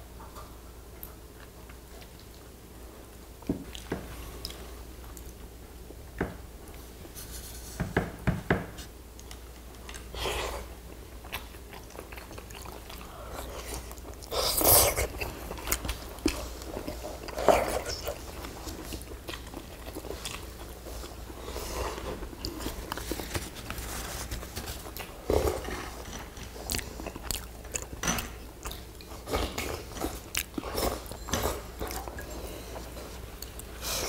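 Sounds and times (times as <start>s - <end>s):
chewing and mouth sounds: 9.1s - 23.8s, 24.7s - 33.8s.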